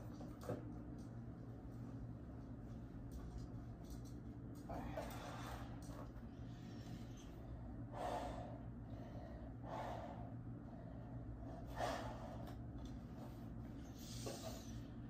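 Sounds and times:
man breathing hard: 0:06.5 - 0:12.6.

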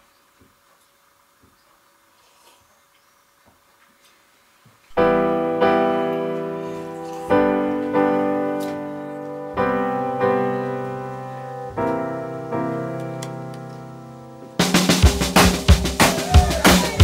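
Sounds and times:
slow piano chords: 0:04.9 - 0:17.0.

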